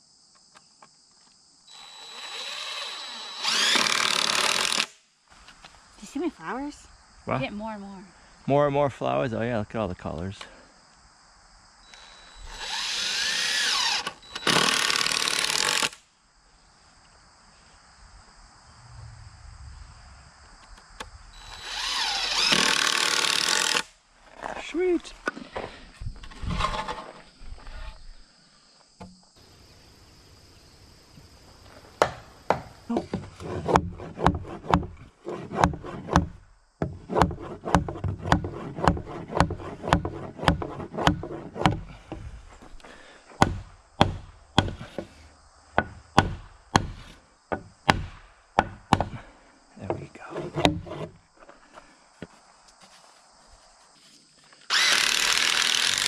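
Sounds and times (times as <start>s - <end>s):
hammer blows on wooden beam: 45.8s - 49.2s.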